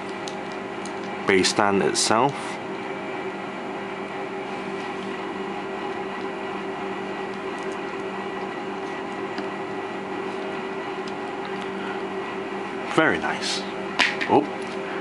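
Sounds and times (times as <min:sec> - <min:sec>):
steady room hum: 0:00.0 - 0:15.0.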